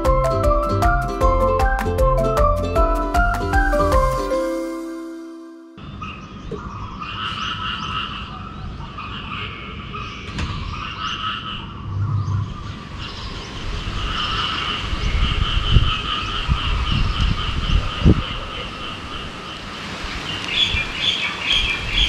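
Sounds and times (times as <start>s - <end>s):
low rumble: 11.6s - 16.0s
frogs calling in trills: 13.9s - 19.7s.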